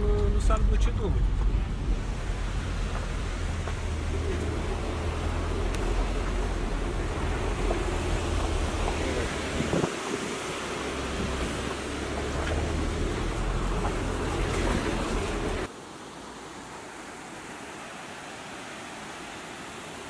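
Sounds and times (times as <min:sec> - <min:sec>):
wind buffeting microphone: 0:00.0 - 0:12.0
waterfall rushing: 0:00.0 - 0:20.0.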